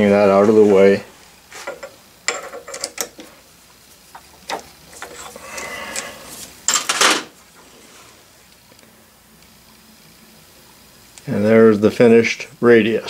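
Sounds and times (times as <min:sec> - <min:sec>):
tools clattering: 0:01.5 - 0:03.3, 0:06.7 - 0:07.3.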